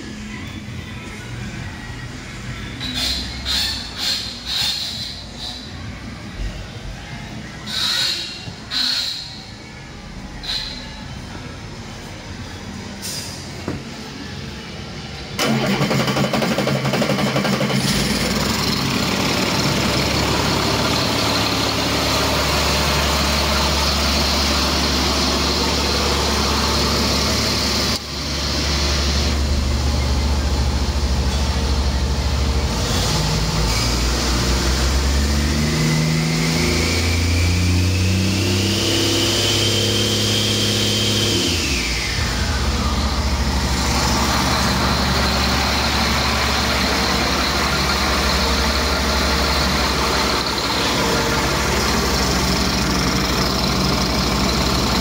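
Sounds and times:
diesel engine running: 0:00.0 - 0:55.0
turbocharger whine: 0:15.3 - 0:55.0.

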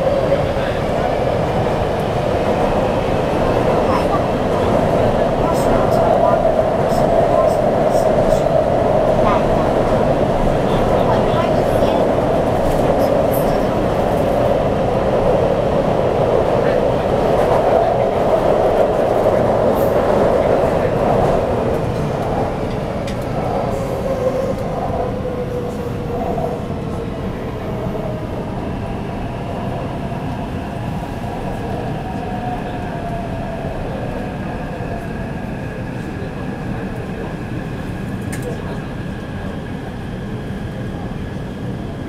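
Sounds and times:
train rumble and rail noise: 0:00.0 - 0:42.0.

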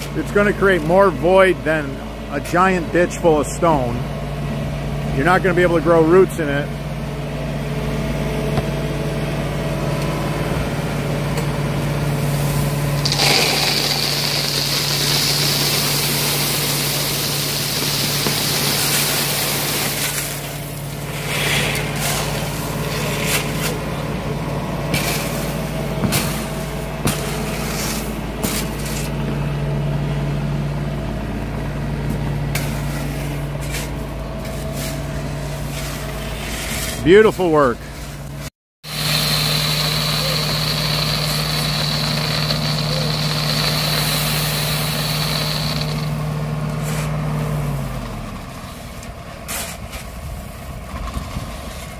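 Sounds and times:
gravel rushing: 0:12.0 - 0:29.4, 0:38.8 - 0:51.9
shovel scraping on stone: 0:12.4 - 0:23.9, 0:24.9 - 0:29.2, 0:32.5 - 0:37.2, 0:39.2 - 0:47.2, 0:49.4 - 0:50.2
small loader engine idling: 0:38.9 - 0:49.5.

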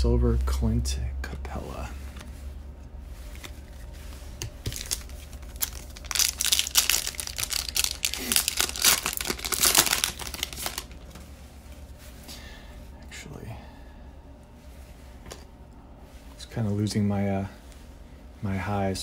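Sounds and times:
plastic wrapper crinkling and tearing: 0:03.3 - 0:11.2.

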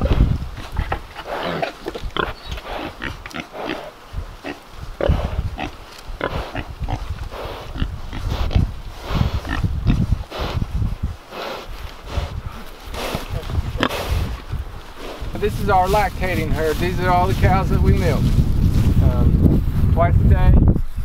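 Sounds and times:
pigs grunting: 0:00.0 - 0:10.6, 0:11.3 - 0:14.4.

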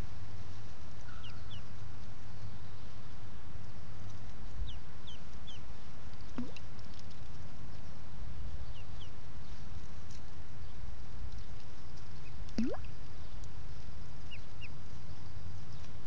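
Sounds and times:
ducklings peeping: 0:01.0 - 0:02.2, 0:04.0 - 0:07.1, 0:08.6 - 0:09.6, 0:14.2 - 0:15.0.

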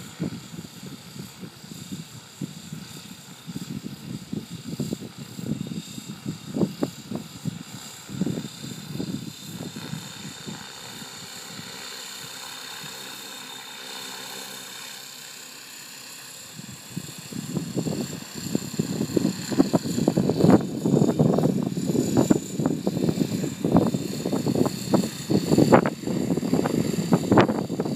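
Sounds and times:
wind buffeting microphone: 0:00.0 - 0:11.7, 0:16.5 - 0:27.9
low rotor hum: 0:00.0 - 0:27.9
model helicopter motor whine: 0:00.0 - 0:27.9.

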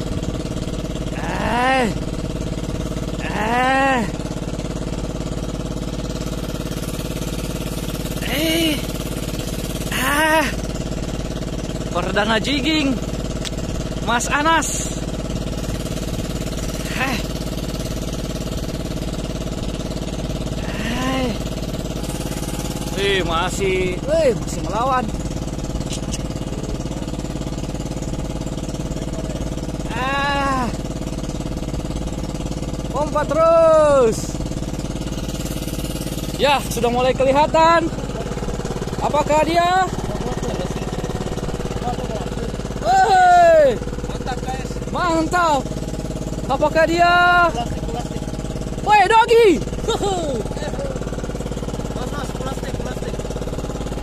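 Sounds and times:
boat engine idling: 0:00.0 - 0:54.0
person calling out: 0:01.1 - 0:02.1, 0:03.2 - 0:04.3, 0:08.2 - 0:08.9, 0:09.9 - 0:10.6, 0:16.8 - 0:17.3, 0:20.6 - 0:21.5, 0:29.8 - 0:30.8, 0:42.8 - 0:43.8, 0:48.8 - 0:50.8.

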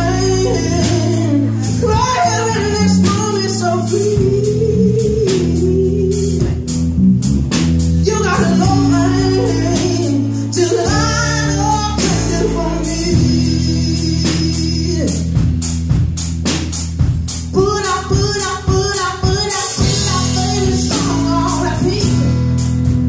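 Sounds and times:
woman singing: 0:00.0 - 0:06.8, 0:08.0 - 0:15.2, 0:17.5 - 0:22.6
acoustic guitar: 0:00.0 - 0:16.6
electric bass: 0:00.0 - 0:23.0.

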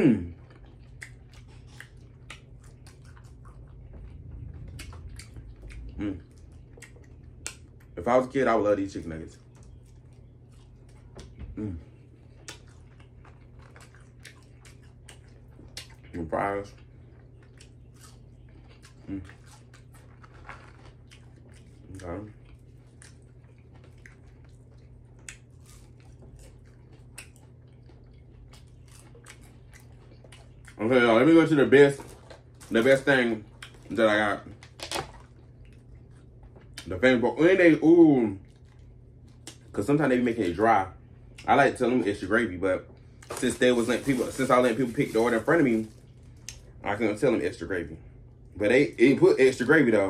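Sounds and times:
person chewing crunchy food: 0:00.0 - 0:08.0, 0:09.4 - 0:37.0, 0:38.1 - 0:39.8
steady low hum: 0:00.0 - 0:50.0
person humming mm: 0:06.0 - 0:06.2, 0:11.5 - 0:11.9.

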